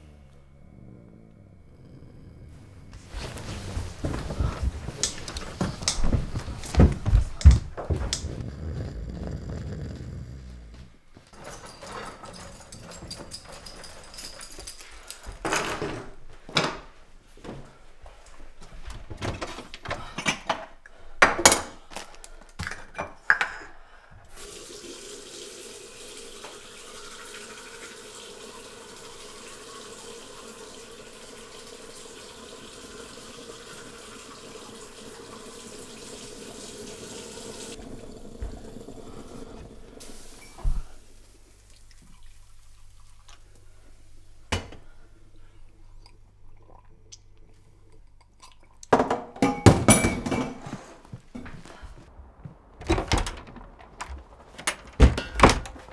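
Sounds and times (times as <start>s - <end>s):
knocks and thumps: 52.3s - 55.9s.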